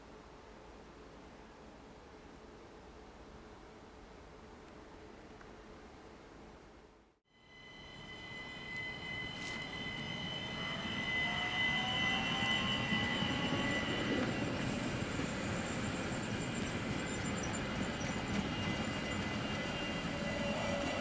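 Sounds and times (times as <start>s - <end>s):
high steady train whine: 7.3s - 21.0s
train wheels rumbling on rail: 8.0s - 21.0s
burst of hiss: 14.6s - 17.0s.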